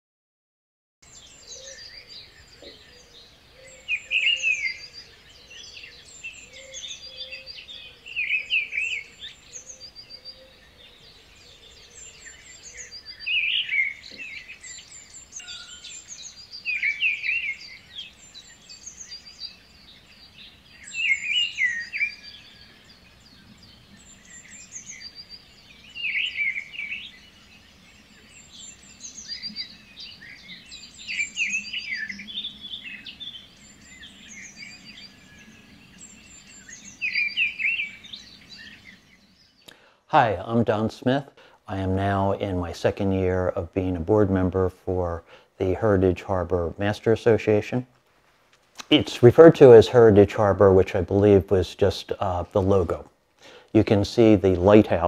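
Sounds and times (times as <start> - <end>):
soft high bird chirps: 1.0 - 42.6
birds singing: 1.0 - 55.0.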